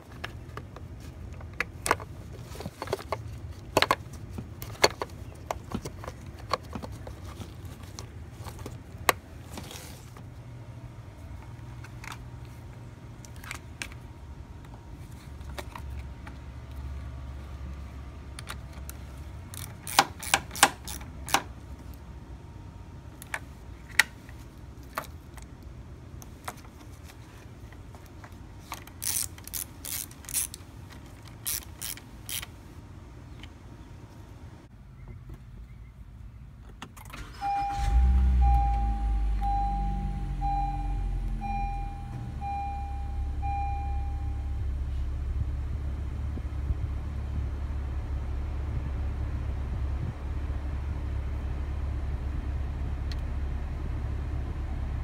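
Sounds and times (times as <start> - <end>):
socket ratchet clicking: 19.5 - 21.5, 28.9 - 30.6, 31.3 - 32.5.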